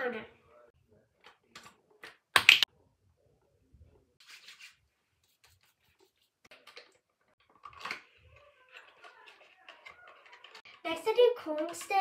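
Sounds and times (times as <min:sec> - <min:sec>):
hands rubbing and patting face: 0:04.2 - 0:06.8.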